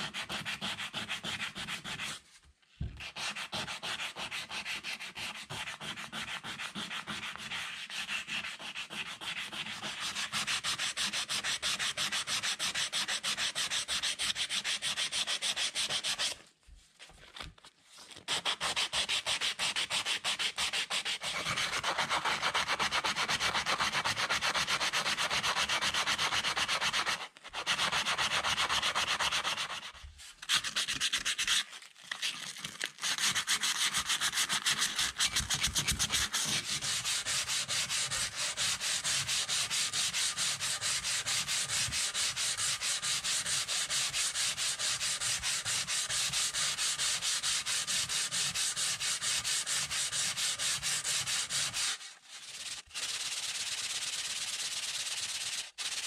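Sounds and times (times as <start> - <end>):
sandpaper scraping metal: 18.3 - 31.7, 33.1 - 56.0.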